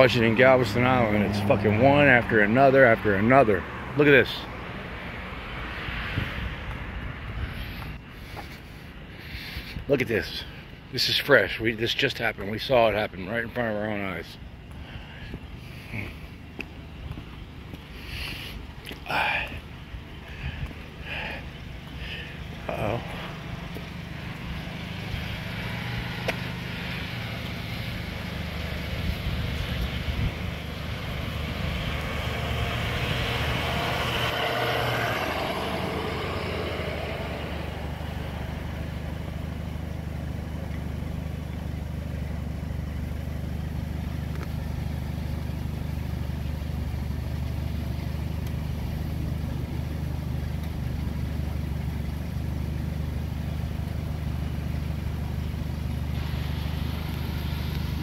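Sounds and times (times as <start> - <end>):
vehicle passing: 0.0 - 9.8, 14.7 - 40.3
car engine idling: 0.0 - 58.0.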